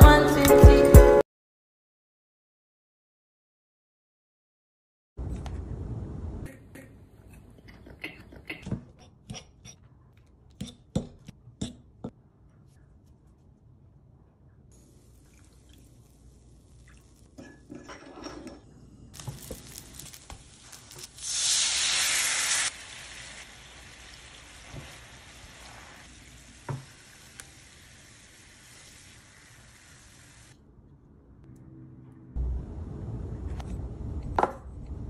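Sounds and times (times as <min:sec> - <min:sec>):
mixing and scraping in a bowl: 0:17.4 - 0:21.2
cakes sizzling in oil: 0:19.1 - 0:30.6.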